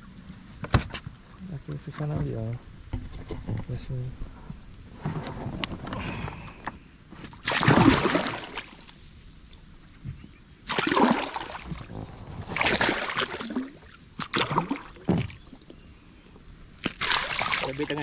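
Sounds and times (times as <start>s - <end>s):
fish thrashing and splashing water: 7.4s - 8.9s, 10.7s - 15.5s, 16.8s - 18.0s.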